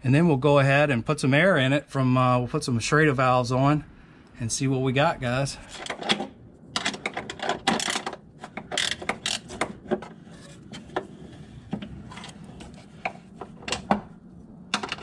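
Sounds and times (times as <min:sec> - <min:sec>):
ratcheting wrench clicking: 0:06.8 - 0:09.5.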